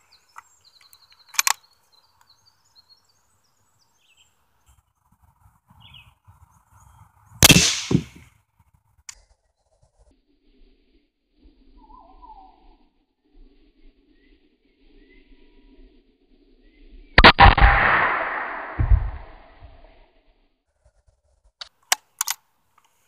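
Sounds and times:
sharp click: 1.3s - 1.6s
bullet hitting helmet: 7.4s - 8.2s
rifle shot crack: 7.4s - 8.2s, 17.2s - 19.4s.

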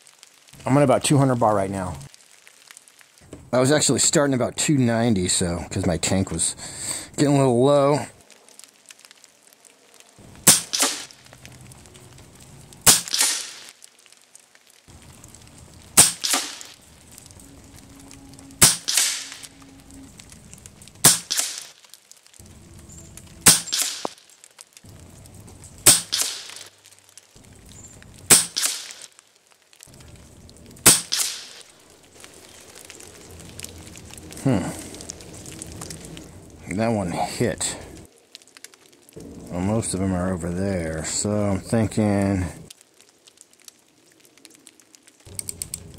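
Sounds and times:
air rifle shots: 10.4s - 11.1s, 12.8s - 13.6s, 16.0s - 16.7s, 18.6s - 19.3s, 21.0s - 21.7s, 23.4s - 24.1s, 25.8s - 26.6s, 28.3s - 29.0s, 30.8s - 31.6s.

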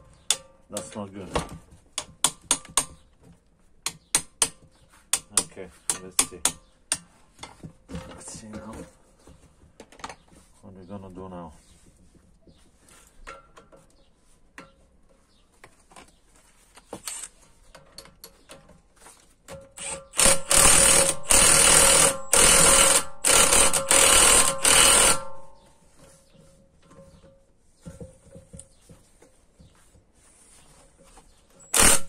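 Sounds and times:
impact tool hammering: 2.0s - 3.0s, 19.8s - 25.6s.

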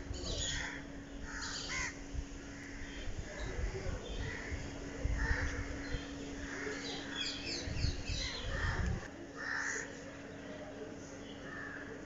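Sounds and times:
crows cawing: 0.4s - 3.0s, 4.2s - 7.4s, 8.2s - 10.0s, 11.4s - 12.0s
low rumbles on microphone: 7.4s - 9.1s.

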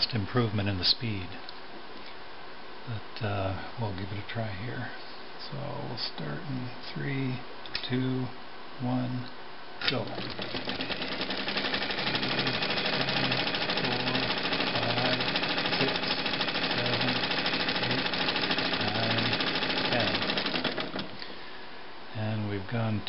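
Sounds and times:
sewing machine clatter: 9.8s - 21.2s.

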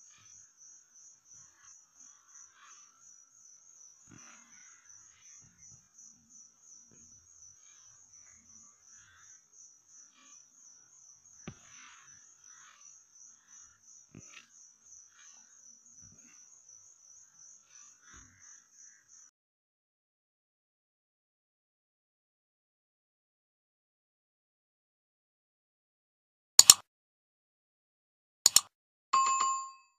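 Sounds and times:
faint insect chirping: 0.0s - 19.3s
soft clicks: 26.6s - 26.8s, 28.5s - 28.7s.

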